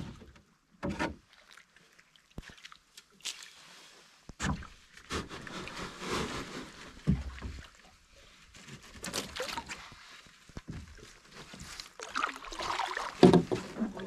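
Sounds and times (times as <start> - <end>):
water splashing and sloshing: 0.0 - 14.0
knocks and thumps on canoe: 4.4 - 5.5, 6.9 - 7.7, 13.0 - 14.0.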